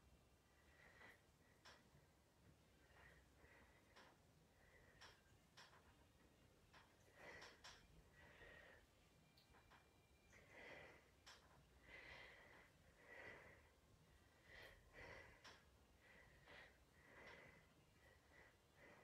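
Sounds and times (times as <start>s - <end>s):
woman breathing rhythmically: 0.0s - 19.0s
faint clicks: 4.9s - 6.0s, 11.2s - 11.6s.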